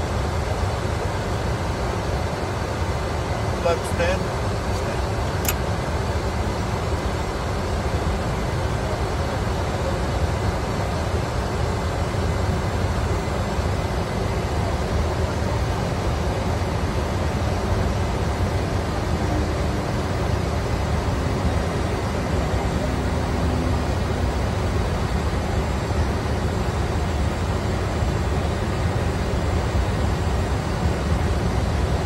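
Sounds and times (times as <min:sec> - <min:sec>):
jet airflow rushing: 0:17.2 - 0:32.0.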